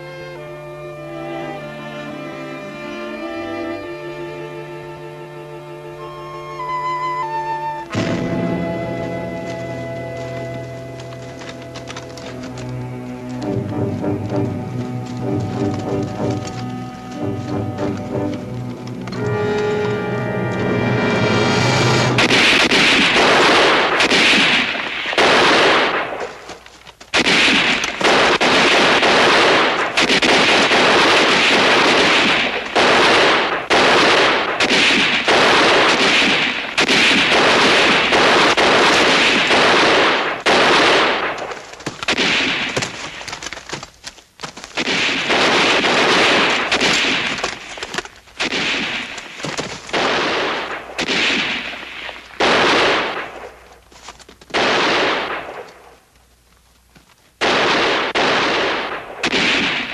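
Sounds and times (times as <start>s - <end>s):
machine-gun and rifle fire: 22.0s - 26.5s, 27.1s - 43.2s, 44.8s - 53.6s, 54.5s - 55.9s, 57.4s - 59.9s.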